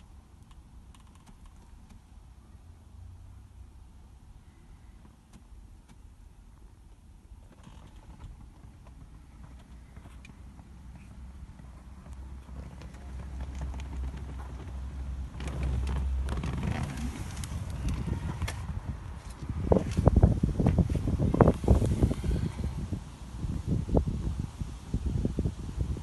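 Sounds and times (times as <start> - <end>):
car interior rumble: 0.0 - 26.0.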